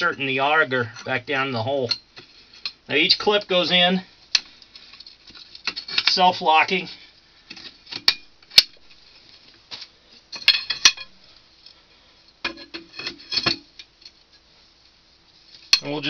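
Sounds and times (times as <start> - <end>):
metal rods clinking: 4.3 - 6.8, 10.3 - 11.1, 12.4 - 14.2, 15.6 - 16.0.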